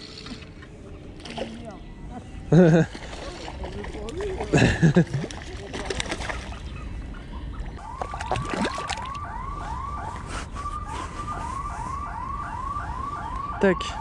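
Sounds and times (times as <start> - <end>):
fish splashing in water: 2.9 - 6.7, 7.8 - 9.3
distant siren whooping: 7.8 - 14.0.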